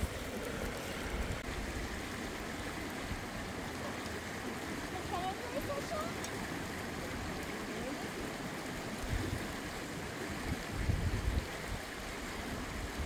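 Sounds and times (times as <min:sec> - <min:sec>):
flowing water rushing: 0:00.0 - 0:13.0
wind buffeting microphone: 0:09.0 - 0:09.6, 0:10.4 - 0:12.0.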